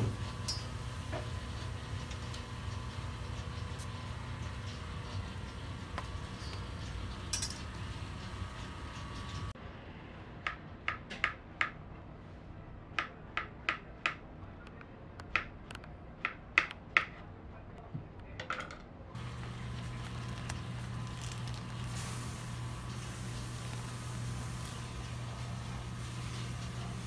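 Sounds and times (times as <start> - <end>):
steady low hum: 0.0 - 10.5, 19.1 - 27.0.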